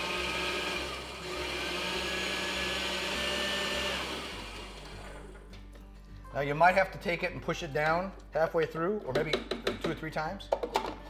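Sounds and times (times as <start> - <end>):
food processor chopping: 0.0 - 5.0.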